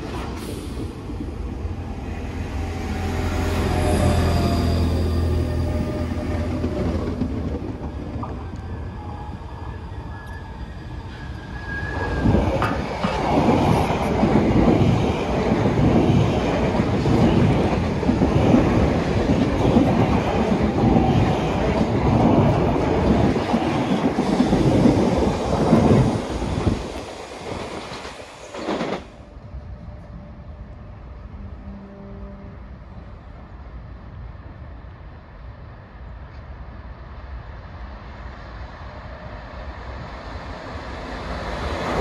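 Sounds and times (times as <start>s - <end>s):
low train hum: 0.0s - 42.0s
train wheels clacking over rails: 12.1s - 29.2s.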